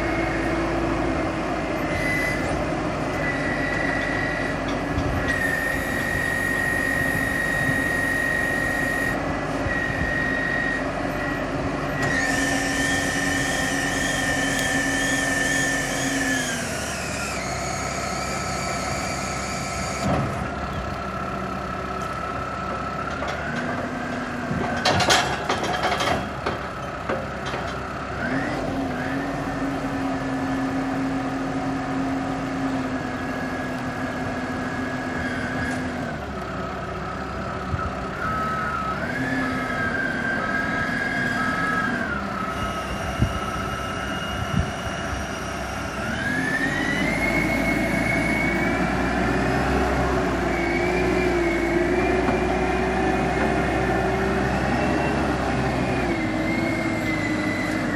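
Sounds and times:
hydraulic whine: 0:00.0 - 0:20.9, 0:37.0 - 0:57.9
diesel engine under load: 0:00.0 - 0:57.9.

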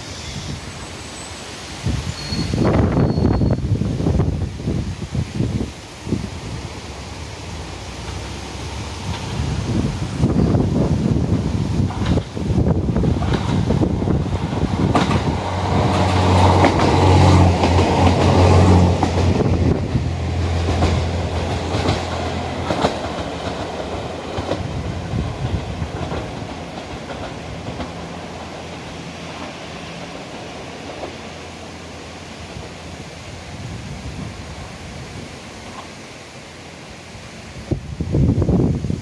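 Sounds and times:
railcar engine running: 0:00.0 - 0:39.0
wheels clicking over rail joints: 0:07.8 - 0:20.0, 0:20.6 - 0:31.8.

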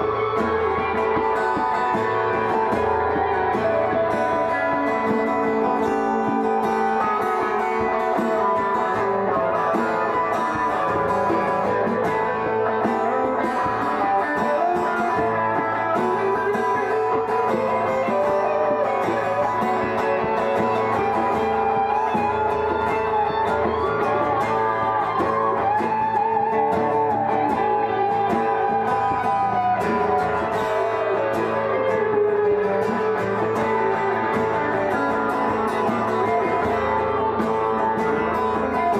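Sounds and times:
guitar melody line: 0:00.0 - 0:38.9
guitars strumming chords: 0:00.0 - 0:38.9.

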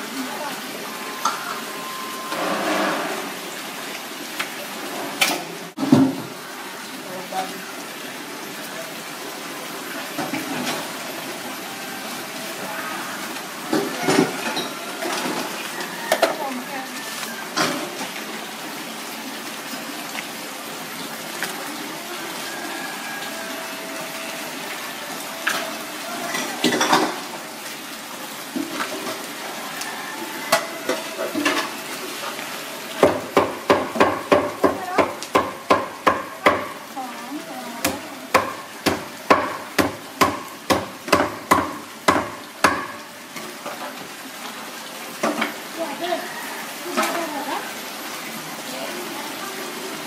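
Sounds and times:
sharp rhythmic knocks: 0:33.0 - 0:36.8, 0:37.8 - 0:43.0.

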